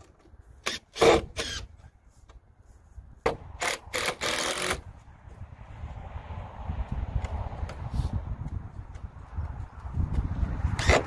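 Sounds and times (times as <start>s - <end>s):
cordless drill driving screws: 0.6s - 1.7s, 3.6s - 4.8s.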